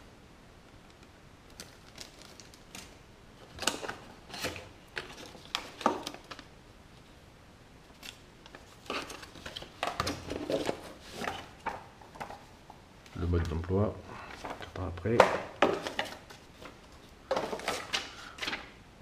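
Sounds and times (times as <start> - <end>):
cardboard rustling: 1.5 - 6.5, 8.0 - 18.7
plastic bag crinkling: 1.5 - 6.5.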